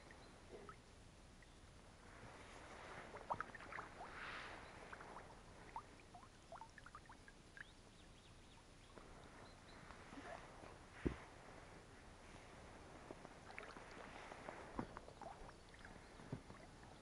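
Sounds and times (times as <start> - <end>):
oar splashing in water: 2.7 - 5.9
water dripping from oars: 3.1 - 9.1, 13.2 - 17.0.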